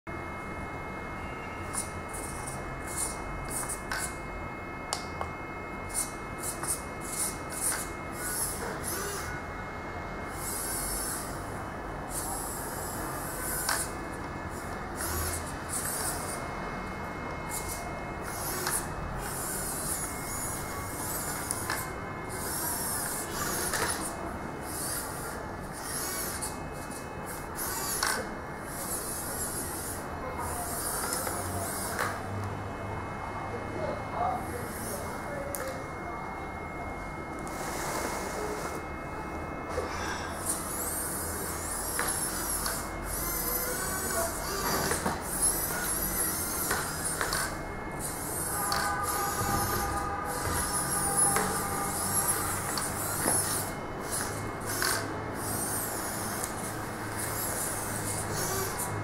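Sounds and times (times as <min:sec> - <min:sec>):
toy car motor whine: 0:01.5 - 0:04.2, 0:05.9 - 0:09.5, 0:10.2 - 0:32.3, 0:34.2 - 0:35.9, 0:37.4 - 0:38.9, 0:39.6 - 0:59.0
short high buzzes: 0:34.5 - 0:59.0.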